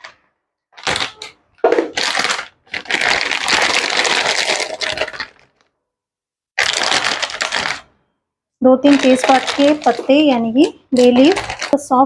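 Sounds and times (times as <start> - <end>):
plastic packet crinkling: 0.0 - 5.7, 6.6 - 8.0, 8.7 - 12.0.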